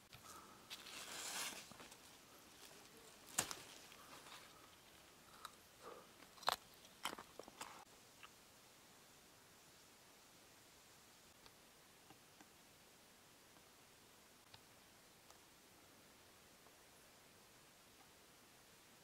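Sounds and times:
faint rustling: 0.0s - 6.0s.

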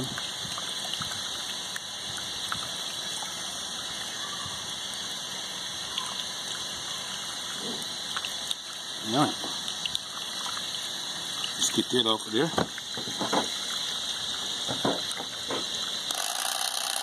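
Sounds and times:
tap water running and splashing: 0.0s - 17.0s.

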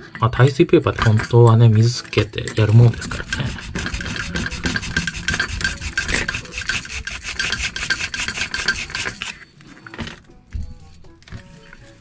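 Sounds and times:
sandpaper scraping hard plastic: 1.0s - 9.4s.

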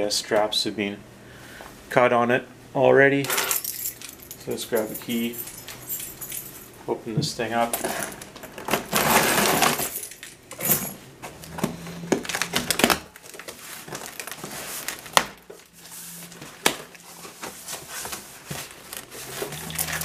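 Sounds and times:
key dragged through packing tape: 8.9s - 10.0s
cardboard flaps scraping and rustling: 11.3s - 19.7s.

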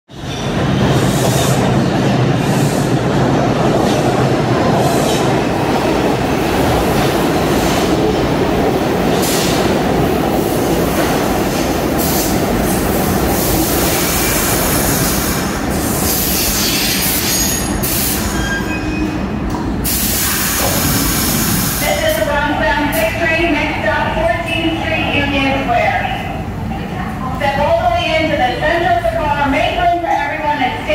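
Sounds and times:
train wheels rumbling on rails: 0.1s - 30.9s
wheel and brake squeals: 16.3s - 19.2s.

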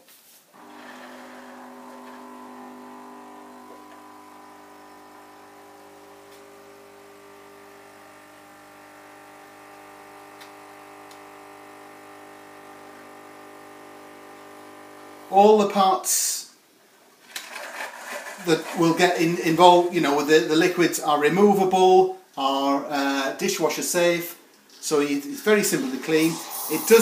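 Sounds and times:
coffee machine pump humming: 0.5s - 15.7s, 18.3s - 19.2s, 25.8s - 27.0s
milk streaming into cup: 0.6s - 15.4s, 17.3s - 19.6s.

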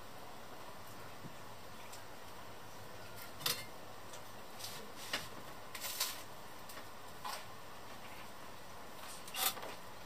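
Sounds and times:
fork scraping frying pan: 9.2s - 9.6s.

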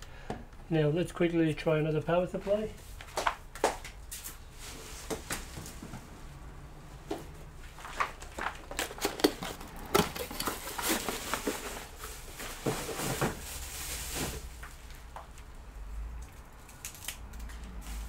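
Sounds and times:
rustling: 7.6s - 15.4s
handling clicks and knocks: 8.1s - 11.7s.

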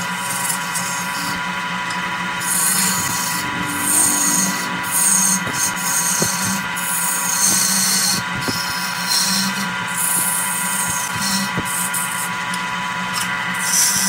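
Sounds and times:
lathe gouge scraping wood: 0.0s - 12.4s, 13.2s - 14.0s.

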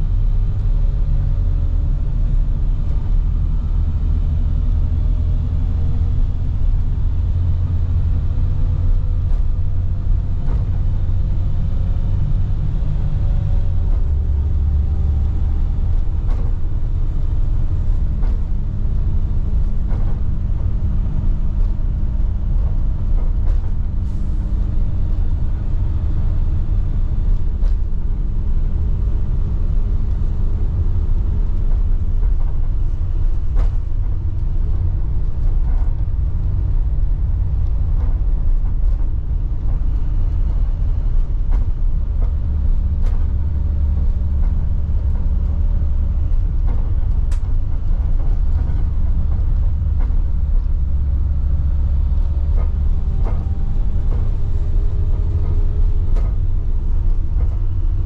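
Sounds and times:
diesel engine droning: 0.0s - 58.0s
road rumble: 0.0s - 58.0s
light clicks and rattles: 30.0s - 58.0s.

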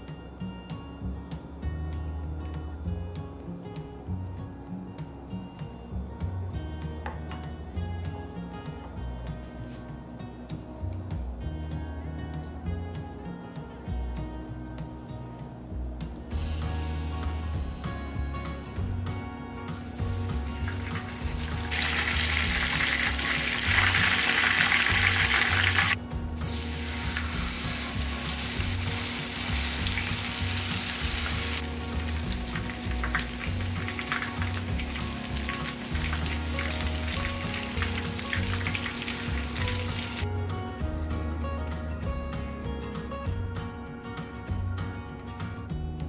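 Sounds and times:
food sizzling in hot oil: 19.7s - 40.2s.

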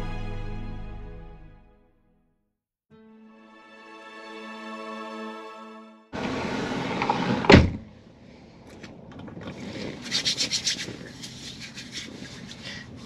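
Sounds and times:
loud thump: 7.4s - 7.9s
handling and rustling noise: 8.7s - 13.0s
rubbing scrapes: 9.4s - 13.0s.

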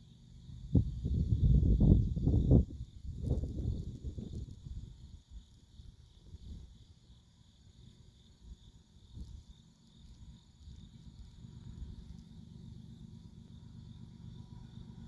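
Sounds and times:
crickets chirring: 0.0s - 15.0s
low uneven rumble: 9.1s - 15.0s.

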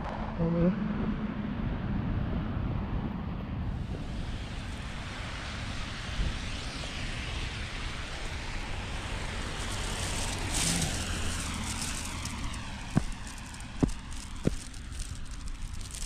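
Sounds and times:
steady rushing noise: 1.1s - 16.0s
footsteps crunching through snow: 9.4s - 16.0s.

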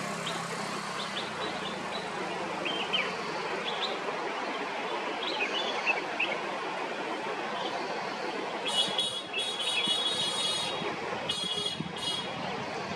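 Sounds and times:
waterfall rushing: 0.0s - 12.9s
bird chirps: 8.6s - 10.7s.

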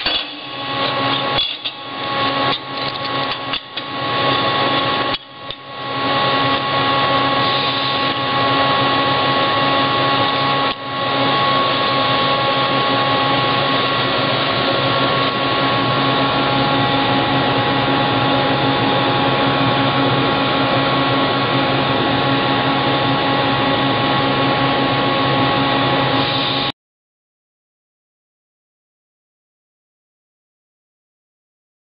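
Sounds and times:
shop machinery drone: 0.0s - 26.8s.

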